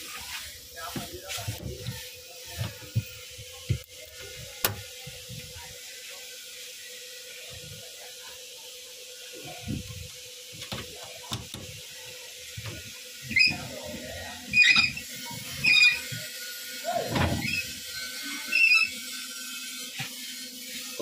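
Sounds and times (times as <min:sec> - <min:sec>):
steering wheel squeaks: 0:14.5 - 0:15.0, 0:15.6 - 0:16.1.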